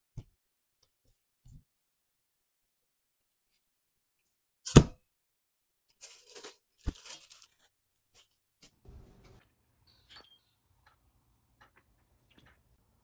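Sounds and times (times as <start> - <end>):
cling film crinkling: 5.9 - 8.8.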